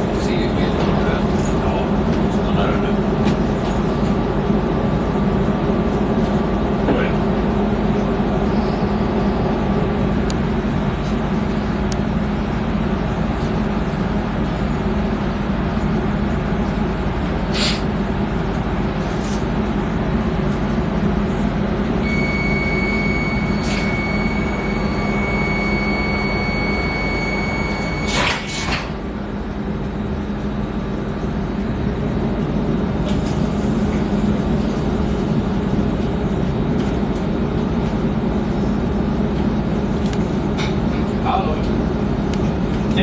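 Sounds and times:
train rumble: 0.0s - 43.0s
short hiss: 17.5s - 17.8s
high whine: 21.0s - 36.9s.

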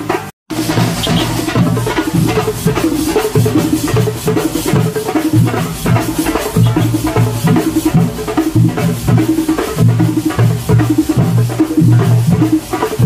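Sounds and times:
marching drums beaten with sticks: 0.1s - 13.0s.

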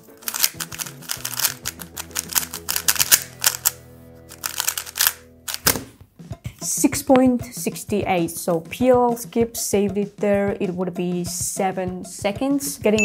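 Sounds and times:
speed cube clicking: 0.2s - 5.7s.

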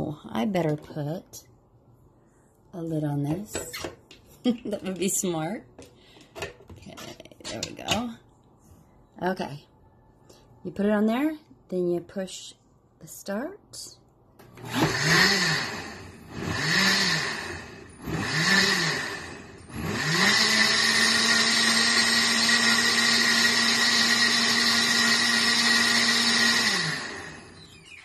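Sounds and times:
blender motor running: 14.6s - 28.0s.

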